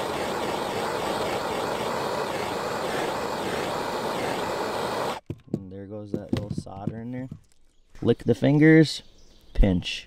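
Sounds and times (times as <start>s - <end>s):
heat tool rushing: 0.0s - 5.2s.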